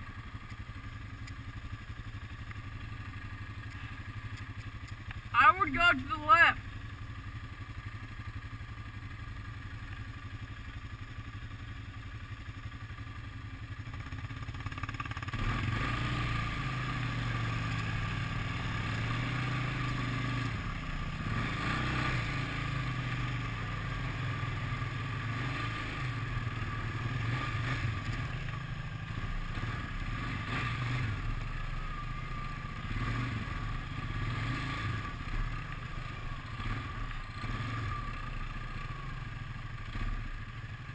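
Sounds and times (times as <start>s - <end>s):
atv engine revving: 13.0s - 40.9s.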